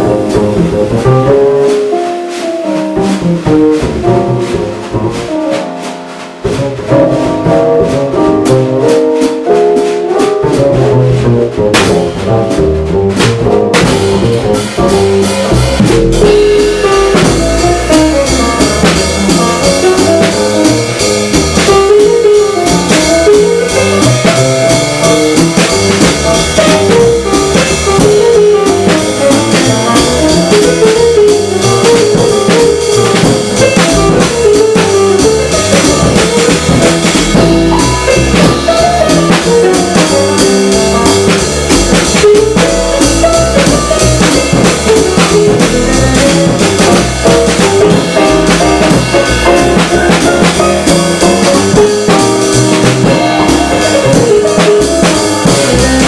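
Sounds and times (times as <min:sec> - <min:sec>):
drum kit cymbals: 0:00.0 - 0:56.0
piano: 0:00.0 - 0:56.0
plucked upright bass: 0:00.0 - 0:56.0.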